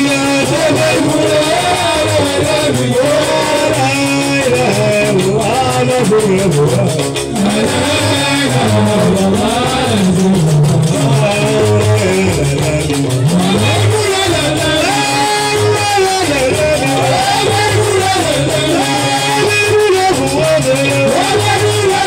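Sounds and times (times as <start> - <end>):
fast clicking rhythm: 0.0 - 22.0
man singing: 0.0 - 22.0
plucked bass lute: 0.0 - 22.0.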